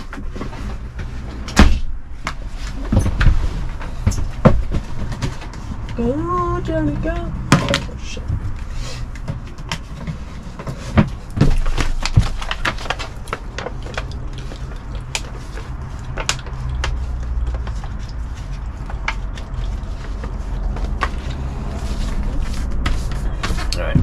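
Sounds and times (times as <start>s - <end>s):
low background rumble: 0.0s - 24.0s
paper envelope clicks and rustles: 9.2s - 23.7s.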